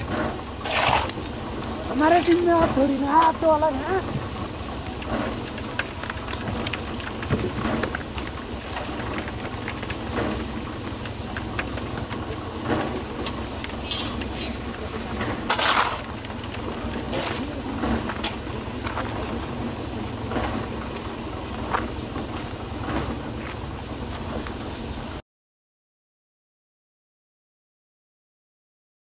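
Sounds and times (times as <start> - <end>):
shovel scraping concrete mix: 0.0 - 4.1, 5.0 - 19.5
low machine rumble: 0.0 - 25.2
mix tipped down tin chute: 11.3 - 19.2.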